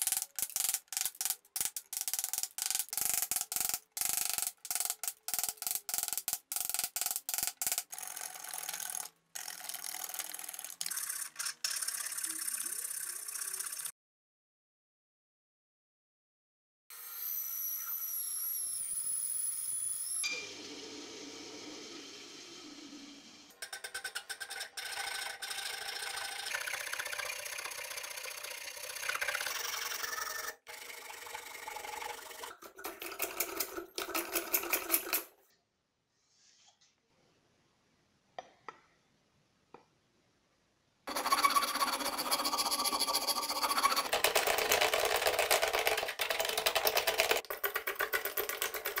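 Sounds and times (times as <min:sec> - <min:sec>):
hand plane strokes on wood: 0:41.1 - 0:44.1
rasp scraping wood: 0:41.1 - 0:44.2.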